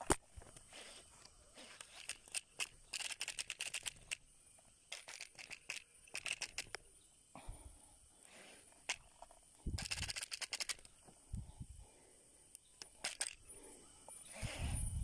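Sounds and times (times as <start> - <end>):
fishing reel clicking: 1.8 - 4.2, 4.9 - 6.8, 9.8 - 10.9, 12.8 - 13.4.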